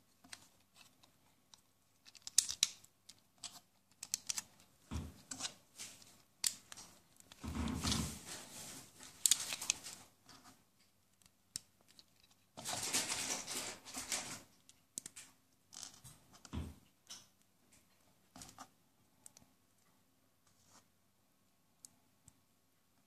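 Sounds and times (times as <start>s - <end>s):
plastic bricks clicking: 2.0s - 4.5s
plastic bricks rustling clatter: 12.6s - 14.4s.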